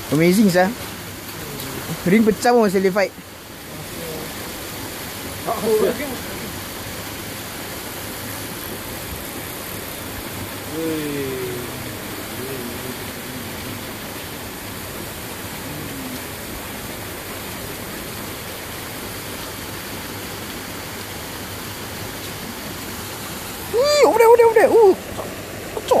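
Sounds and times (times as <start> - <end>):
faint voices: 1.3 - 2.0, 10.7 - 14.4, 15.5 - 16.6.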